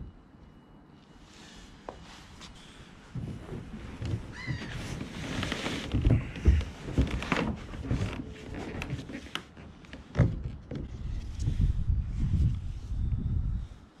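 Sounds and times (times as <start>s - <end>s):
clothing rustling: 1.9s - 9.9s.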